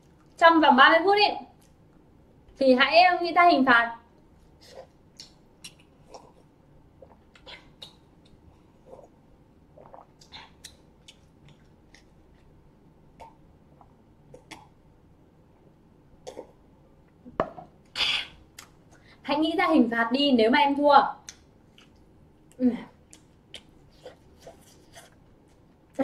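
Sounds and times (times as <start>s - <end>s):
person gulping and swallowing: 8.8s - 12.1s, 13.1s - 14.8s, 16.2s - 16.6s.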